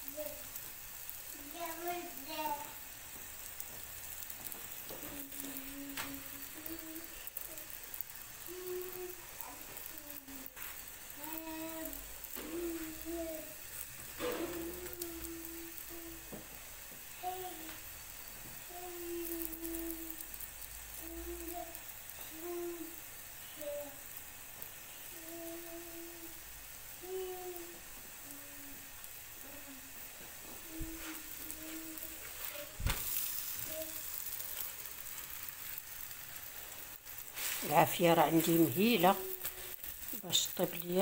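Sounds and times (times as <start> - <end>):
flatbread sizzling in a pan: 0.0 - 41.0
person humming: 8.4 - 9.4, 30.5 - 33.0.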